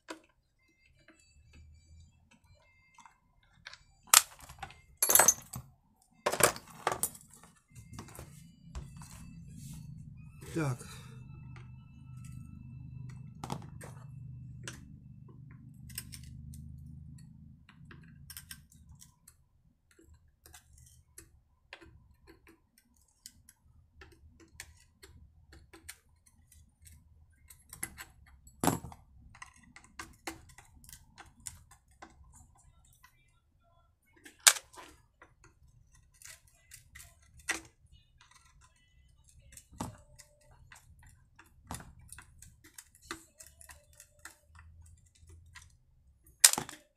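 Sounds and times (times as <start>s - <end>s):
hand tools clicking and clinking: 4.1s - 5.6s, 34.2s - 34.9s, 46.4s - 46.9s.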